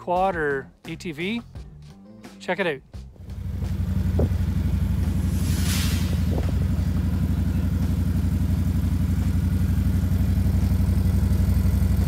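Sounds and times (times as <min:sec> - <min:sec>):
atv engine idling: 0:03.2 - 0:12.0
brief hiss: 0:04.9 - 0:07.2.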